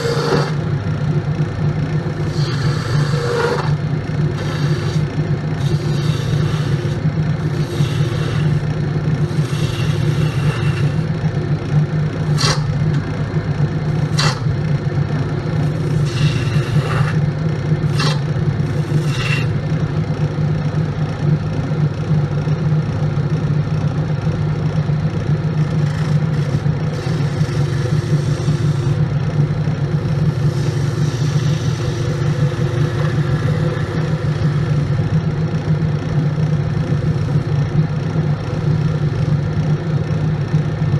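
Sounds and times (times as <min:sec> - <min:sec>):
turning tool scraping wood: 0:00.0 - 0:00.7, 0:02.2 - 0:11.2, 0:12.3 - 0:13.0, 0:13.9 - 0:14.6, 0:15.6 - 0:19.6, 0:25.9 - 0:29.0, 0:30.1 - 0:35.0
wood lathe humming: 0:00.0 - 0:20.4, 0:25.6 - 0:39.7.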